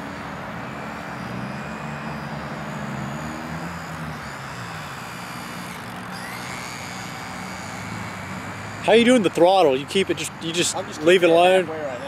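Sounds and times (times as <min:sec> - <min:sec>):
model airplane propeller drone: 0:00.0 - 0:12.0
thin high whine: 0:00.0 - 0:12.0
short rising tone: 0:00.6 - 0:09.1.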